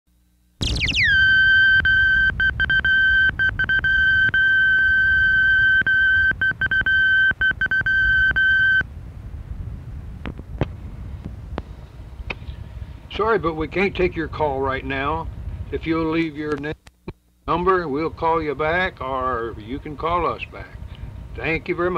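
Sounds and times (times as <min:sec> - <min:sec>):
tape hiss: 0:00.1 - 0:21.9
electronic beep tone: 0:00.6 - 0:08.8.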